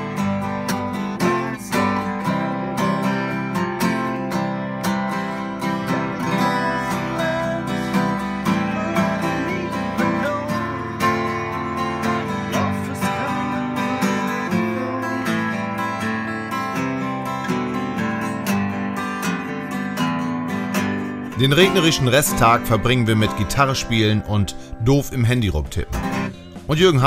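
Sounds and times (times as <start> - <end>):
acoustic guitar strumming chords: 0.0 - 27.0.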